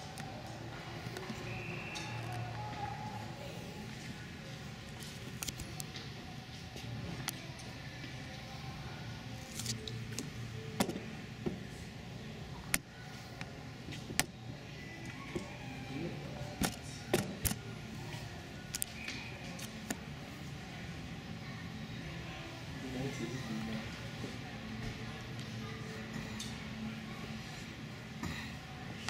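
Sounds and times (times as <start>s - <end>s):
arena hum: 0.0s - 29.0s
faint voices: 0.0s - 29.0s.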